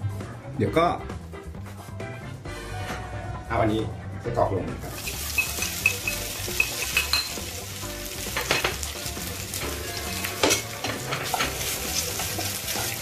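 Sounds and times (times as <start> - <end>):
sausage sizzling in frying pan: 4.8 - 13.0
spatula scraping and clattering: 10.4 - 13.0.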